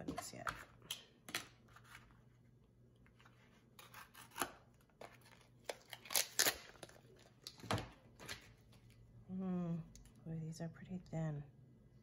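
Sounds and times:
scissors snipping packaging: 0:03.8 - 0:07.0.

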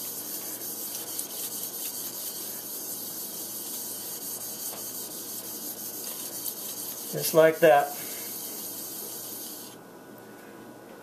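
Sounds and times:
blade grinding on wet sandpaper: 0:00.0 - 0:09.8.

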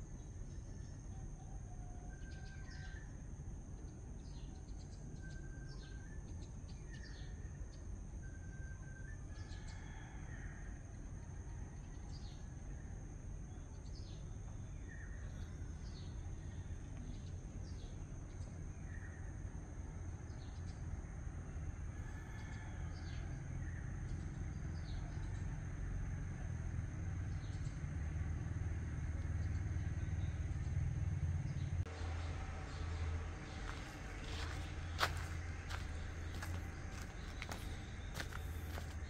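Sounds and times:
low rumble: 0:31.4 - 0:39.0
high-pitched insect whine: 0:31.9 - 0:39.0.

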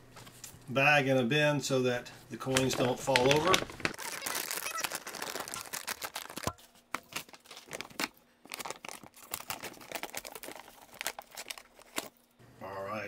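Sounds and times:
plastic bag crinkling: 0:02.4 - 0:12.3.

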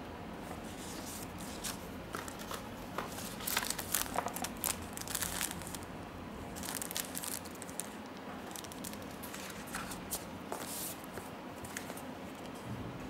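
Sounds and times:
plastic bag crinkling: 0:02.2 - 0:05.9, 0:06.5 - 0:10.1.

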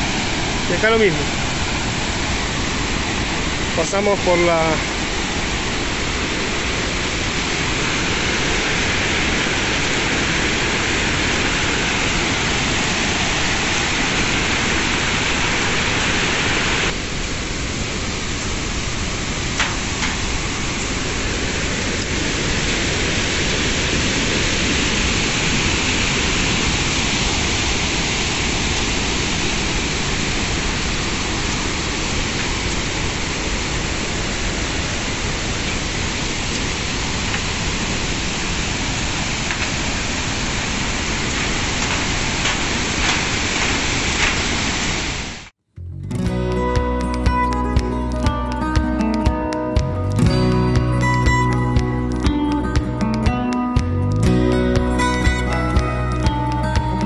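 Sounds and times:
waterfall rushing water: 0:00.0 - 0:45.5, 0:46.6 - 0:57.0.

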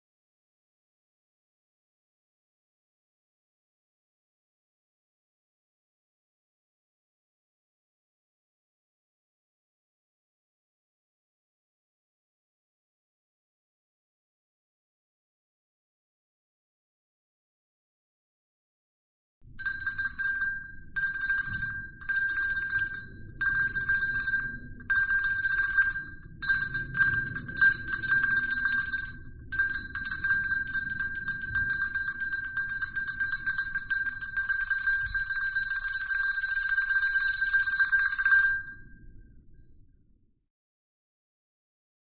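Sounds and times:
cowbell ringing: 0:19.6 - 0:38.8.

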